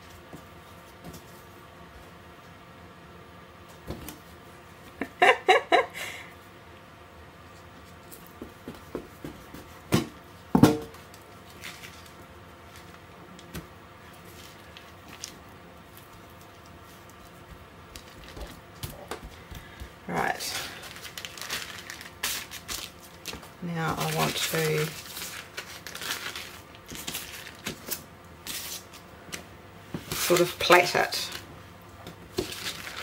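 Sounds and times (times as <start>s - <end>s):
handling dough and baking paper: 7.5s - 29.2s, 29.8s - 31.6s, 32.2s - 33.0s.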